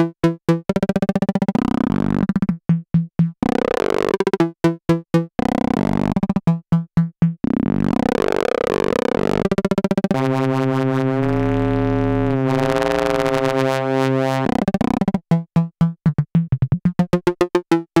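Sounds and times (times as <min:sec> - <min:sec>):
synthesizer pulsing notes: 0:00.5 - 0:18.0
synthesizer pitch-bending tone: 0:10.1 - 0:14.5
short plucked synth notes: 0:10.1 - 0:18.0.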